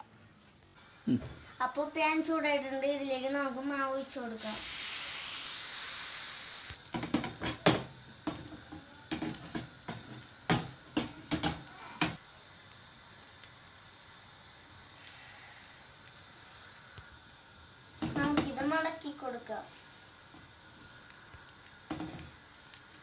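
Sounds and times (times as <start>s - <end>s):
batter sizzling in a pan: 0.7s - 23.0s
pan clanking on stove grate: 6.9s - 12.2s.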